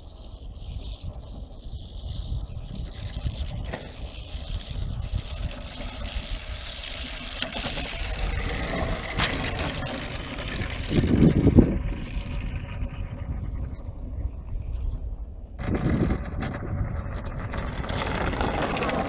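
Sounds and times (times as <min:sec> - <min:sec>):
wind rumble on microphone: 0:00.0 - 0:19.0
runners scraping across ice: 0:17.6 - 0:19.0.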